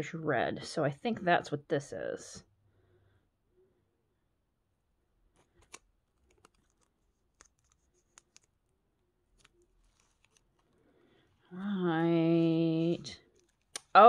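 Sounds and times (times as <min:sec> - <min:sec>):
bubble wrap crinkling: 0:05.4 - 0:11.6, 0:12.4 - 0:14.0.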